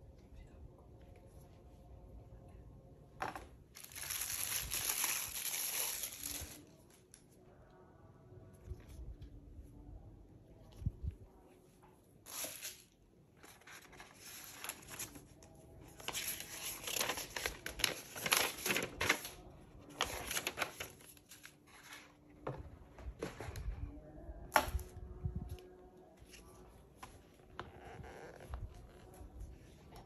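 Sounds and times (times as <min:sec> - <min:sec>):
paper and cardboard rustling: 0:13.4 - 0:23.8.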